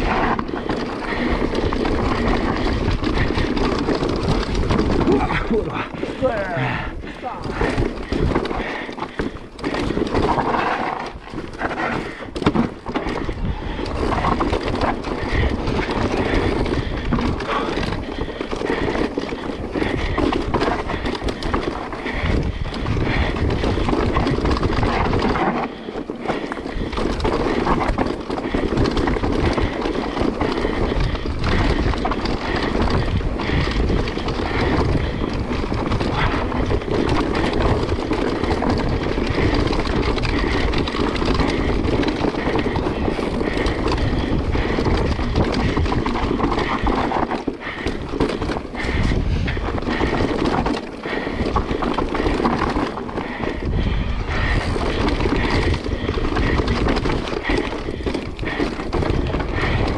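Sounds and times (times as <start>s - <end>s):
bike rattling and knocking: 0.0s - 59.9s
tyres on dirt: 0.0s - 59.9s
wind on microphone: 19.8s - 25.8s, 26.7s - 59.9s.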